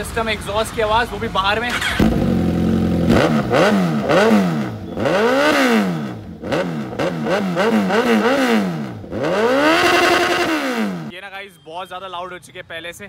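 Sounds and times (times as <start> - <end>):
motorcycle engine revving: 1.7 - 11.1.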